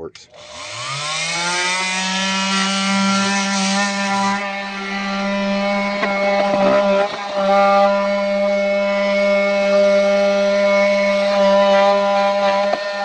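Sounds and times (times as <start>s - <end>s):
oscillating multi-tool buzzing: 0.3s - 13.0s.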